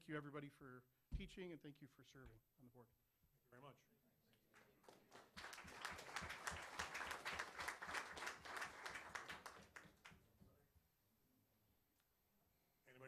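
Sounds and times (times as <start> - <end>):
audience applauding: 4.6 - 10.2.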